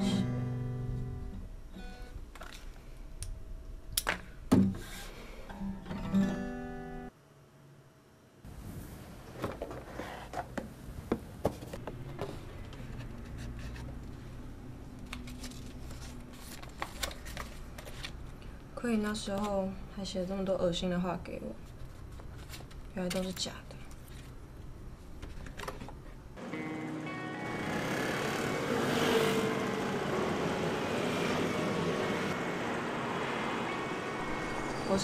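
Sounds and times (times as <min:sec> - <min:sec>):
acoustic guitar plucked and strummed: 0:00.0 - 0:02.2, 0:05.5 - 0:07.1, 0:26.4 - 0:28.9.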